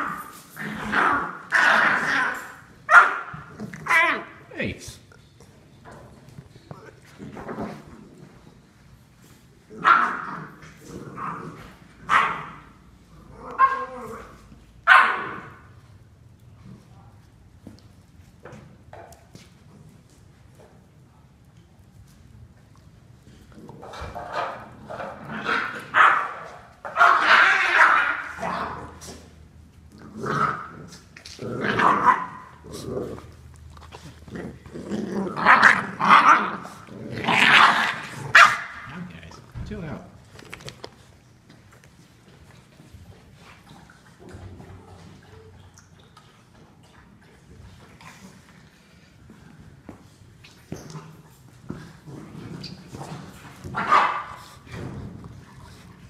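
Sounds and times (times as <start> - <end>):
puppies growling: 0.0 - 4.5, 9.6 - 15.7, 22.8 - 39.6, 50.6 - 56.0
puppies barking: 14.9 - 15.5, 25.4 - 29.0, 37.4 - 38.9, 53.8 - 54.4.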